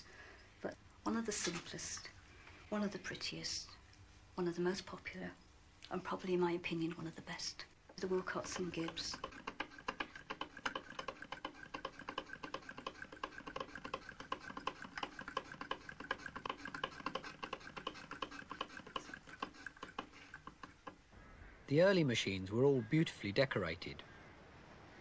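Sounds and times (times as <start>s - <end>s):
sewing machine clicking: 7.9s - 21.0s.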